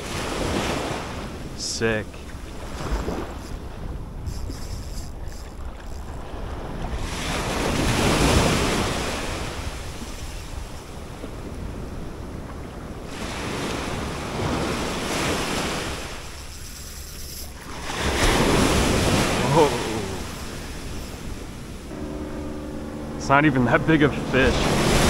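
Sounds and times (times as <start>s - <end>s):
wind buffeting microphone: 0.0s - 19.5s
ocean waves breaking on beach: 0.0s - 25.0s.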